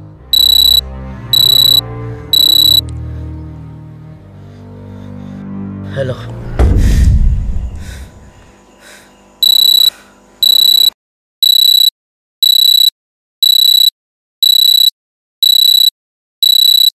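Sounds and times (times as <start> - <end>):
high-pitched alarm beeps: 0.4 - 2.8, 9.4 - 17.0.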